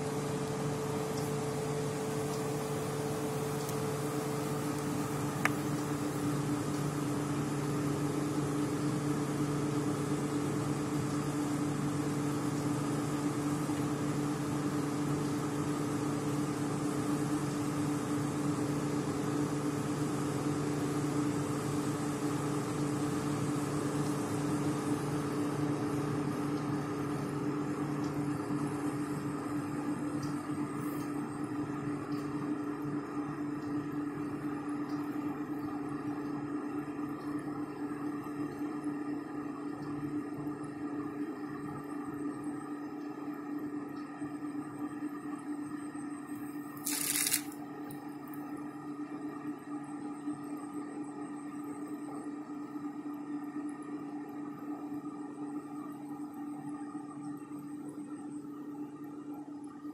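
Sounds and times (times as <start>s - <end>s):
machine hum: 0.0s - 17.6s.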